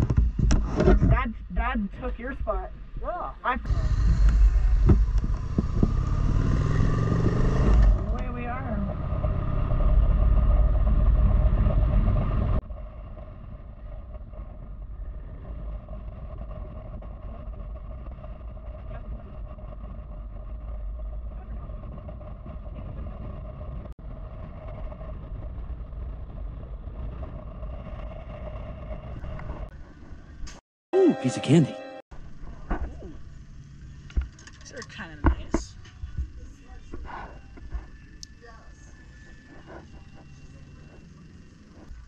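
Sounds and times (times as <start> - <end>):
wind rumble on microphone: 0.0 - 30.6
motorcycle engine drone: 3.4 - 30.6, 32.1 - 42.0.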